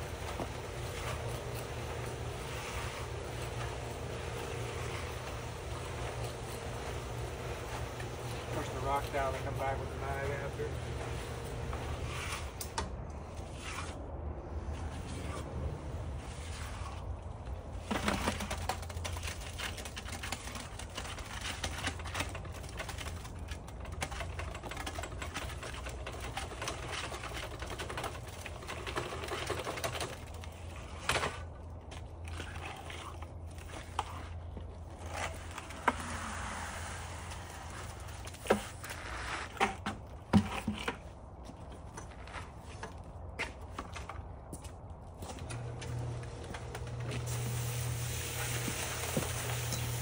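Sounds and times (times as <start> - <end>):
hand tool scraping wet concrete: 0.0 - 12.7, 13.4 - 14.0, 32.3 - 39.8.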